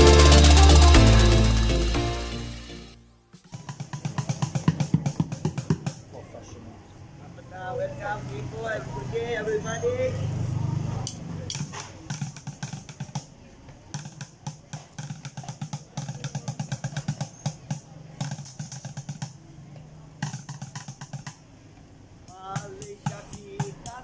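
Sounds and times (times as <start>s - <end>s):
drumsticks beating tins and buckets: 0.0s - 6.1s, 11.5s - 19.4s, 20.1s - 21.4s, 22.3s - 24.0s.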